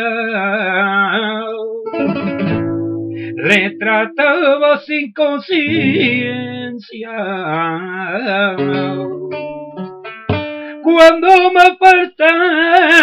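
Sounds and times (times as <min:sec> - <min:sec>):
person singing flamenco-style song: 0:00.0 - 0:13.0
strummed guitar: 0:00.0 - 0:13.0.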